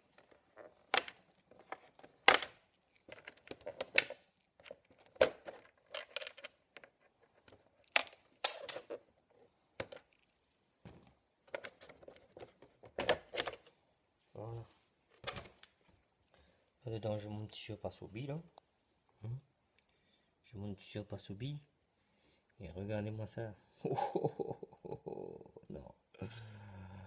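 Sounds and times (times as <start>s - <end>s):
plastic shell clicks and crinkles: 0.1s - 9.1s, 9.8s - 10.6s, 11.4s - 13.8s.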